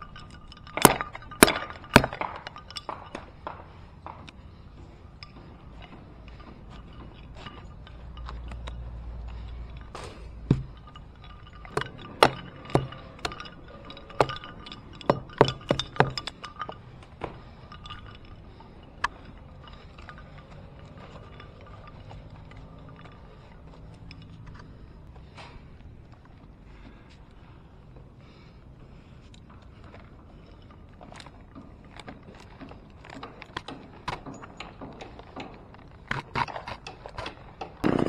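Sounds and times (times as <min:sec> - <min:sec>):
hatchet chopping wood: 0:00.8 - 0:04.3, 0:10.5 - 0:10.7, 0:11.7 - 0:13.5.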